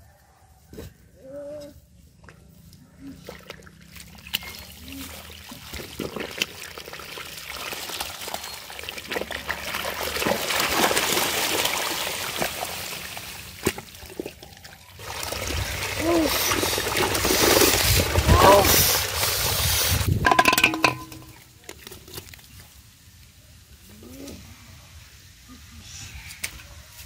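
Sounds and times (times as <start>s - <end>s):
muddy water squelching: 2.1s - 22.6s.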